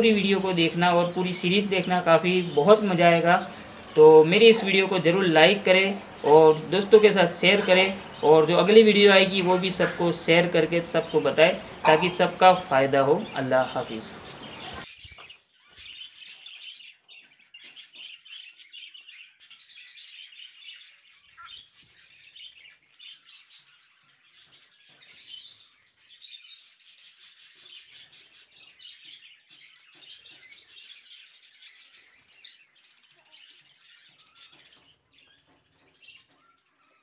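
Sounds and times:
caged birds chirping: 0:00.0 - 0:37.0.

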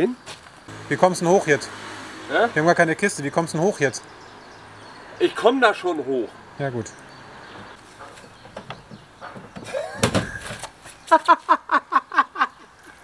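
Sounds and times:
tailgate dropping with a clunk: 0:07.6 - 0:10.7
man laughing hard: 0:09.6 - 0:10.4, 0:11.1 - 0:13.0.

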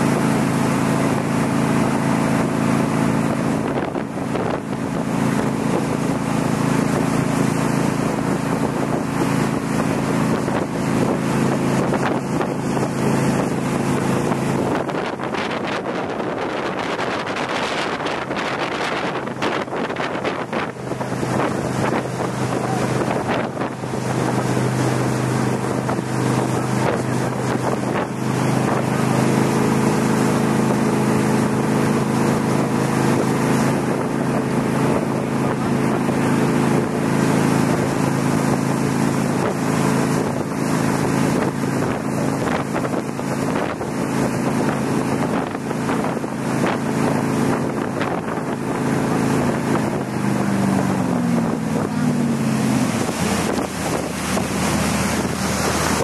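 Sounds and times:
motorboat engine running: 0:00.0 - 0:56.0
water rushing past hull: 0:00.0 - 0:56.0
wind buffeting microphone: 0:00.0 - 0:56.0.

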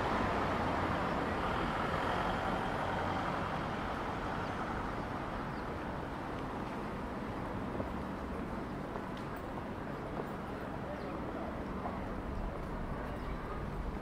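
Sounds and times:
passing motor vehicle: 0:00.0 - 0:08.3.

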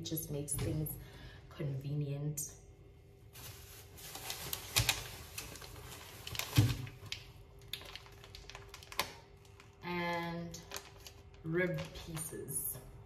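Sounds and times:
plastic packaging crinkling: 0:03.3 - 0:12.6.

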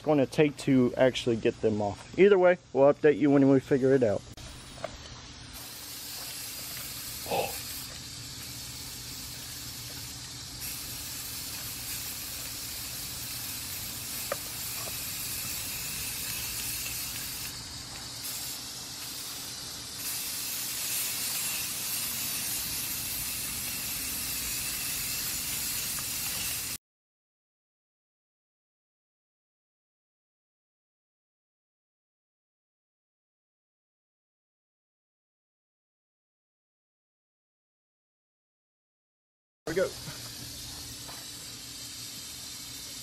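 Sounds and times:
spray paint cans hissing: 0:04.1 - 0:26.8, 0:39.7 - 0:43.0.

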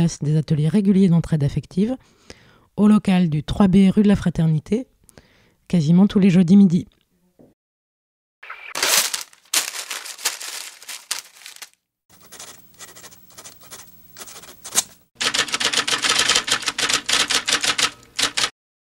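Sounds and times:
sharp clicking and tapping: 0:14.7 - 0:18.5.

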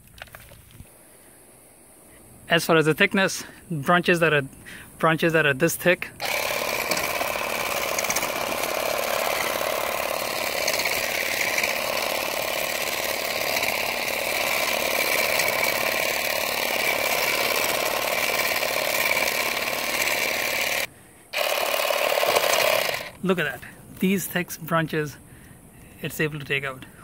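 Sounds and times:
electric hedge trimmer running: 0:06.2 - 0:23.2.

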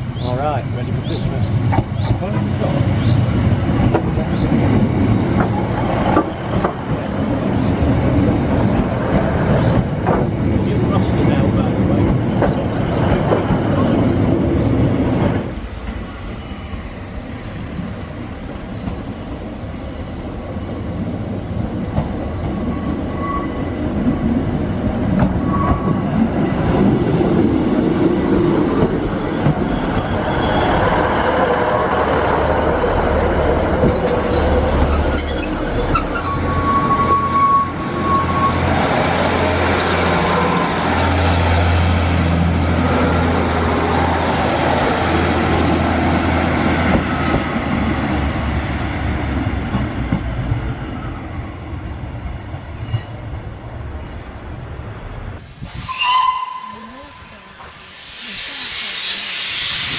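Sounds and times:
train wheels rumbling on rail: 0:00.0 - 0:59.9
high wheel squeal: 0:29.2 - 0:32.0, 0:34.3 - 0:39.0, 0:55.9 - 0:59.9.

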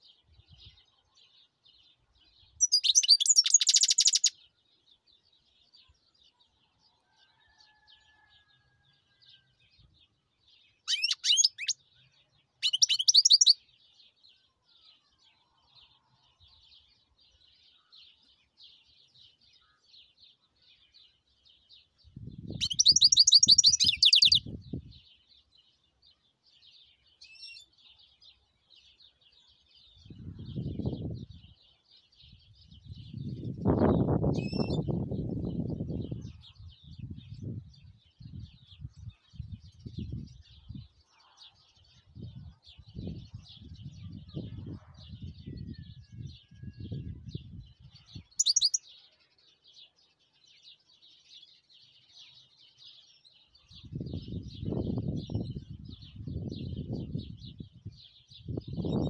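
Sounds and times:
bird twittering and trilling: 0:02.2 - 0:04.4, 0:10.8 - 0:11.8, 0:12.6 - 0:13.7, 0:22.1 - 0:25.0, 0:32.4 - 0:40.9, 0:42.0 - 0:49.0, 0:53.8 - 0:59.0.

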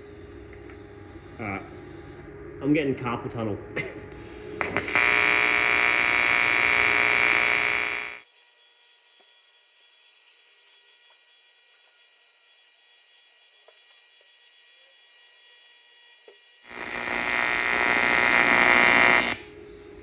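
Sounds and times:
welding arc buzzing: 0:04.2 - 0:08.3, 0:16.5 - 0:19.6.

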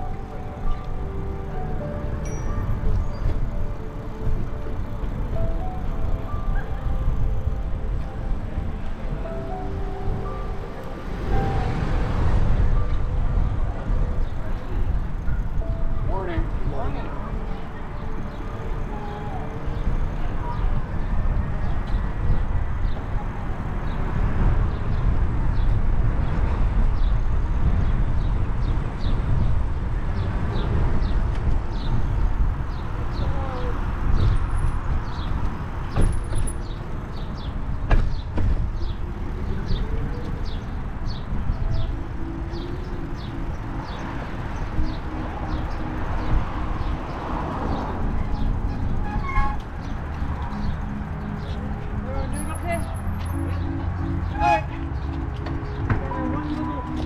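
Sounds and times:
wind buffeting microphone: 0:19.4 - 0:52.0.

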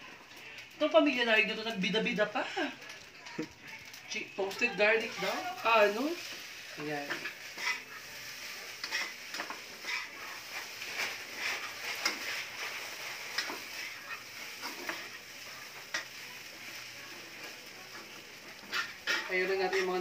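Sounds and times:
fried rice sizzling in a pan: 0:00.0 - 0:20.0
spatula scraping a pan: 0:05.0 - 0:20.0.

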